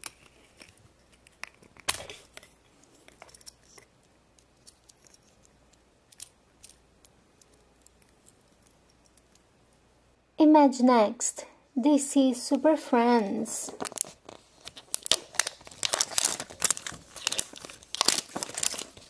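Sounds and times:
small plastic parts clicking: 0.0s - 9.5s.

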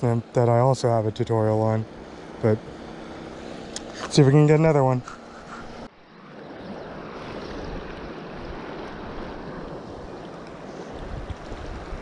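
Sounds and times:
wind rumbling on microphone: 5.1s - 12.0s.

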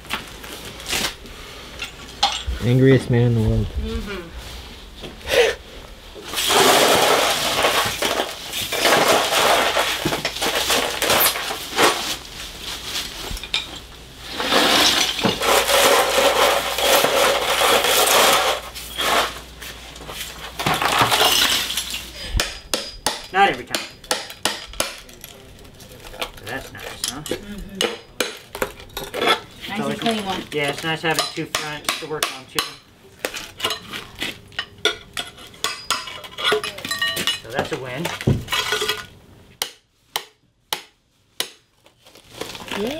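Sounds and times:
tile scraping and crunching: 6.3s - 13.5s, 14.2s - 22.1s
tile shards clinking: 20.6s - 22.1s.

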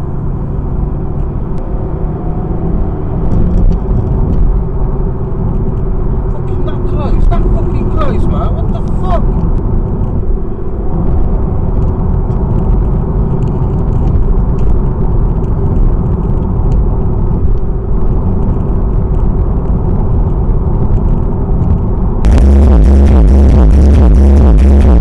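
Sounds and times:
car engine and tyres rumbling: 0.0s - 25.0s
electronic music with heavy bass: 6.4s - 9.4s, 22.3s - 25.0s.

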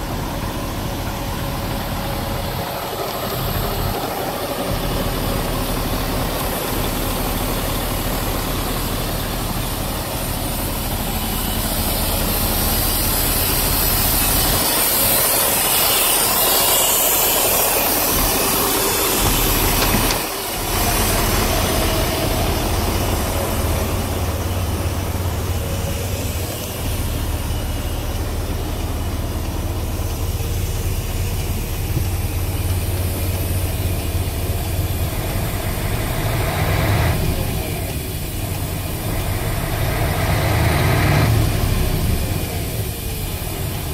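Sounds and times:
diesel truck engine idling: 0.0s - 43.9s.

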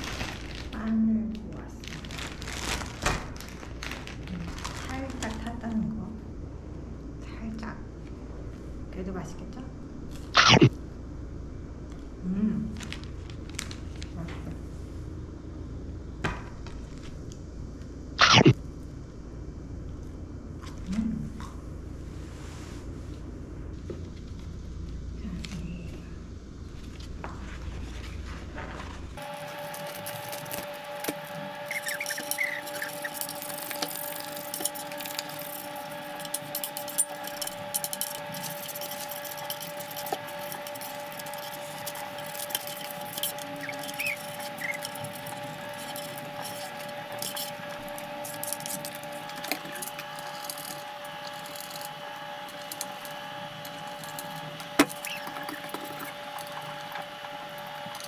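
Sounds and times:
contact paper crackling: 0.0s - 1.0s, 1.6s - 5.7s, 12.7s - 14.2s, 26.7s - 58.0s
steady two-tone hum: 0.0s - 58.0s
squeegee scraping: 27.4s - 58.0s.

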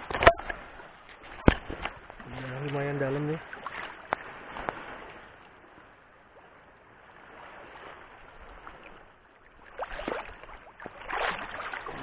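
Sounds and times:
water sloshing from wading: 0.0s - 12.0s.

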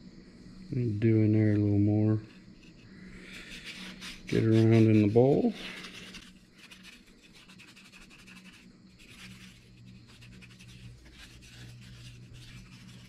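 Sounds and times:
faint low hum: 0.0s - 13.0s
sandpaper swishing on wood: 3.3s - 13.0s.

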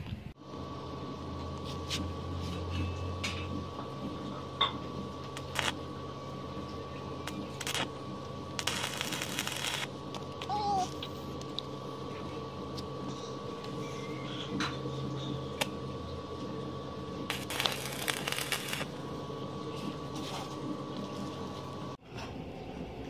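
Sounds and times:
faint steady hum: 0.0s - 22.0s
welding arc crackle: 3.2s - 6.1s, 7.1s - 10.5s, 17.2s - 19.0s.

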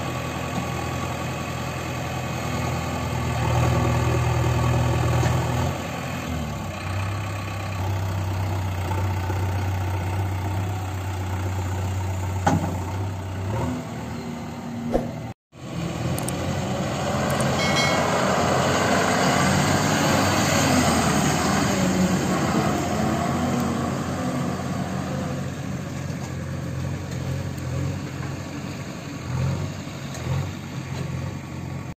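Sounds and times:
truck engine working hard: 0.0s - 31.9s
diesel engine idling: 5.8s - 13.5s.

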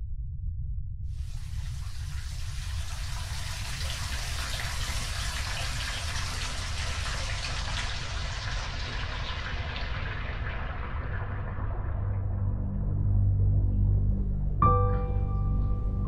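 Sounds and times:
low rumble: 0.0s - 16.0s
water pouring into bathtub: 1.2s - 13.1s.

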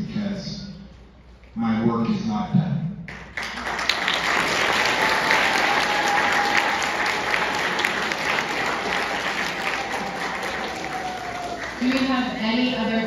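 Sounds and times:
audience applauding: 3.1s - 12.9s.

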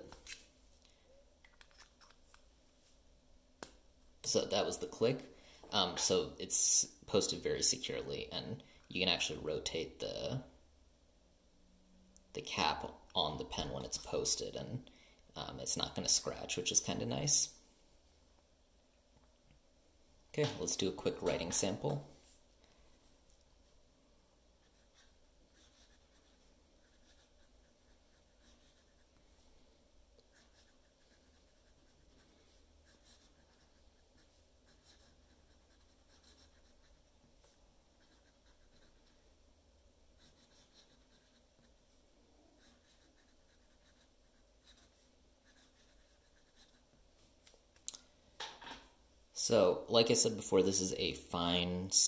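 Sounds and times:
pen nib scratching paper: 24.6s - 29.1s, 30.3s - 39.3s, 40.2s - 41.8s, 42.6s - 47.0s.

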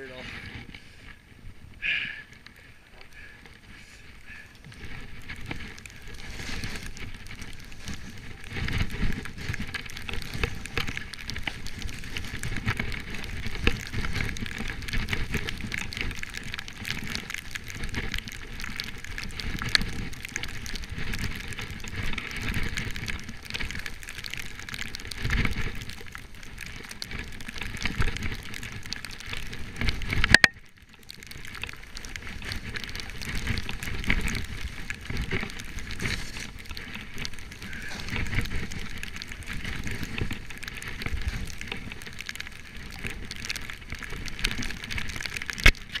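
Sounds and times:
skis scraping over snow: 0.0s - 30.3s, 30.9s - 46.0s
wind rumbling on microphone: 0.0s - 46.0s.

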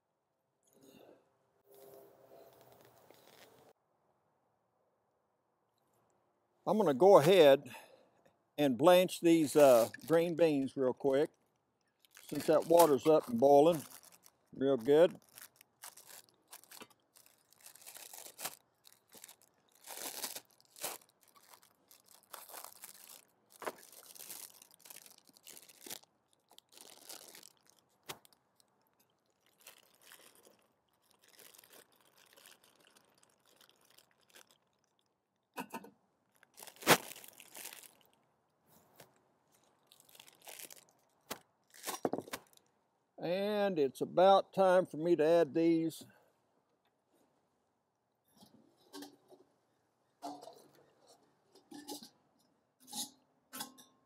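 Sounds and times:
plastic bag rustling: 1.7s - 3.8s, 9.3s - 10.4s, 12.0s - 35.0s, 36.3s - 38.1s, 38.8s - 42.6s.

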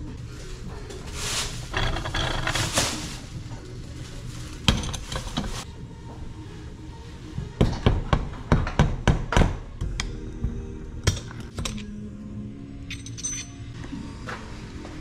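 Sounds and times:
metal knocks and clinks: 12.9s - 13.7s.

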